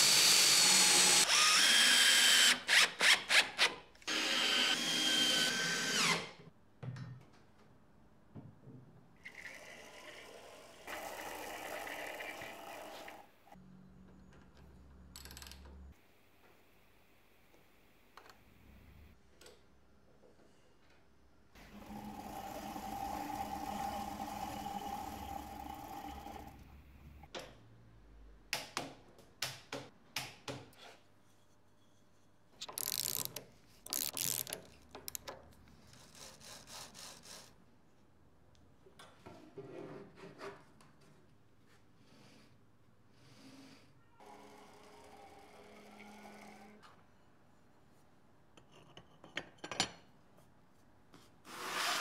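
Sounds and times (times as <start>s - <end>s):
small machine running: 21.7s - 26.6s.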